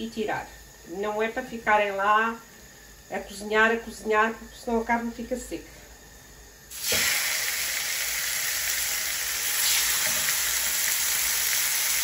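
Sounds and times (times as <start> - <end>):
meat sizzling on grill pan: 6.7 - 12.0.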